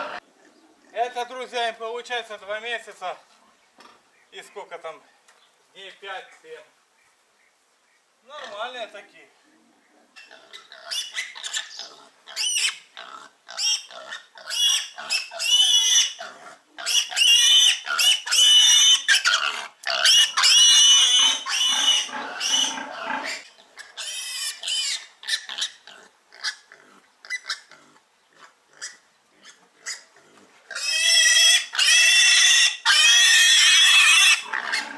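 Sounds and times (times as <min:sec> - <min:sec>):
piglet squealing in distress: 0:10.2 - 0:26.6, 0:30.7 - 0:34.9.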